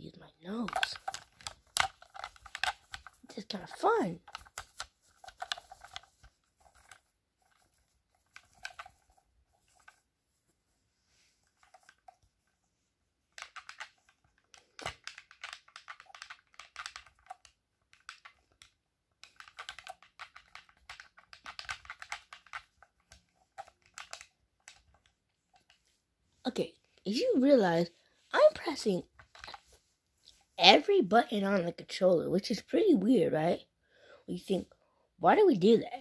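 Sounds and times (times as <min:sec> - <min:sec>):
game controller buttons clicking: 0:00.7 - 0:07.0, 0:13.4 - 0:25.0.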